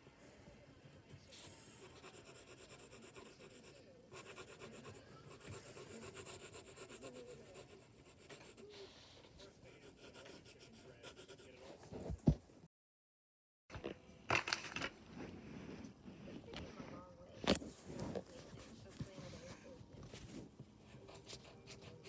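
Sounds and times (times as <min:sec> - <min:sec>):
pencil scratching on paper: 0:01.3 - 0:12.1, 0:19.0 - 0:22.0.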